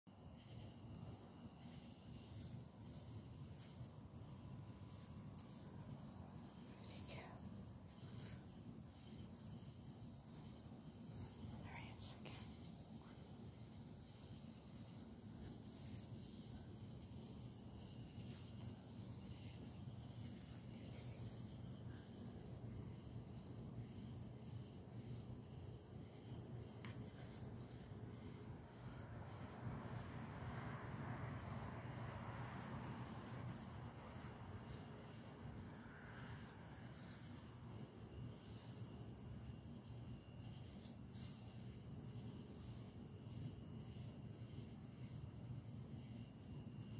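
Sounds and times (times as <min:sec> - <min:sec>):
crickets chirping: 0:00.1 - 0:46.9
soft rustling: 0:00.4 - 0:13.3, 0:14.5 - 0:22.5, 0:33.1 - 0:43.2.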